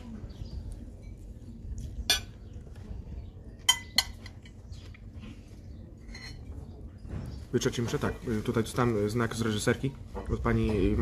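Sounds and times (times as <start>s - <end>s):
tableware clinking: 2.1s - 2.4s, 3.7s - 4.6s, 6.0s - 6.6s.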